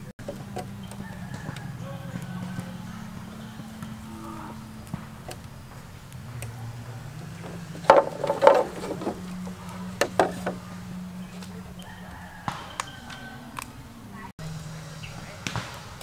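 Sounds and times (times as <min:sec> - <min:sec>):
bamboo poles knocking together: 0:04.8 - 0:10.7.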